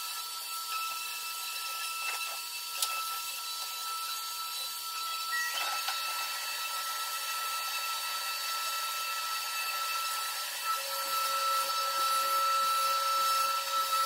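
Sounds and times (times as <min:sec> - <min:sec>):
electric sander whining: 0:00.0 - 0:14.0.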